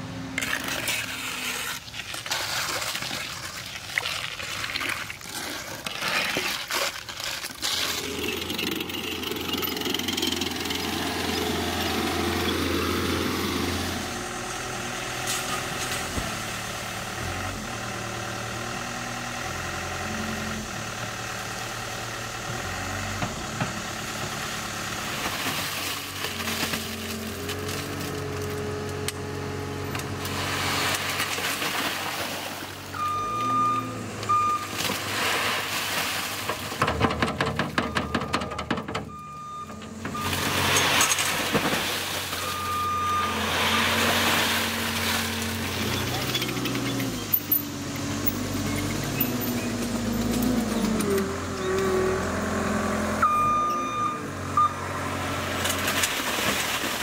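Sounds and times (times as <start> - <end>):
diesel engines working: 0.0 - 3.9, 7.0 - 57.0
screed board scraping concrete: 0.4 - 2.4, 5.2 - 9.0.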